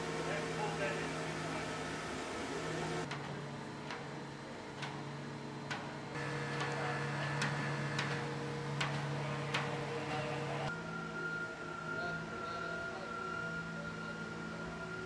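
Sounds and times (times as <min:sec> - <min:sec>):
transporter drive humming: 0:00.0 - 0:10.7.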